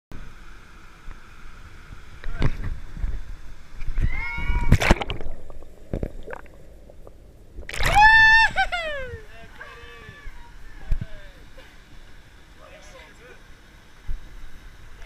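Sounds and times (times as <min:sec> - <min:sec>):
body splashing into water: 0:04.6 - 0:06.5, 0:07.6 - 0:08.2.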